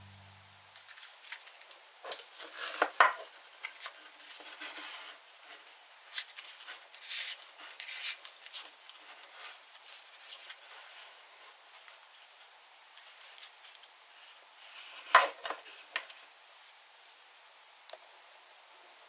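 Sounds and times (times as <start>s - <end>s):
leather belt rubbing and scraping: 6.1s - 11.2s.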